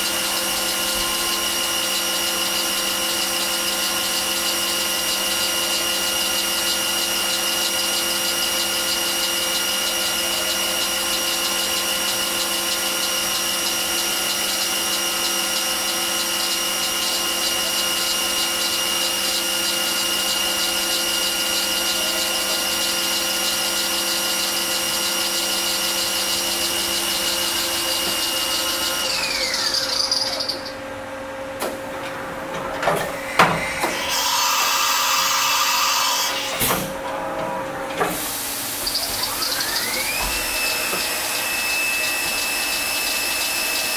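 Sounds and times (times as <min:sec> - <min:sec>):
spindle winding down: 0:00.0 - 0:30.8, 0:38.4 - 0:43.9
mill spindle whining: 0:00.0 - 0:43.9.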